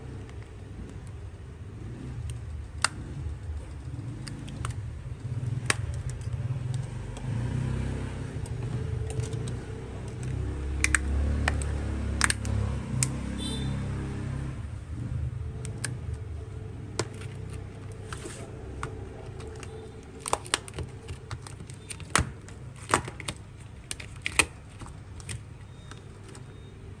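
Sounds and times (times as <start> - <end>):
clicks of small hard objects: 8.5 - 12.6.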